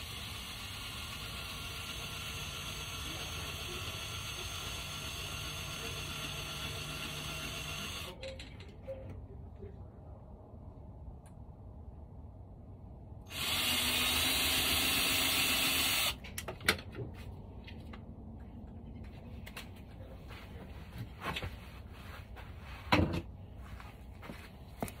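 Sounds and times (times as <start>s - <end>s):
power drill running: 0.0s - 8.2s, 13.3s - 16.2s.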